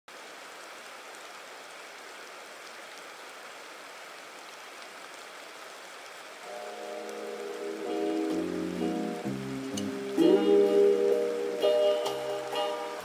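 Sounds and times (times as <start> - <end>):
creek water flowing over rocks: 0.1 - 13.0
music: 6.4 - 13.0.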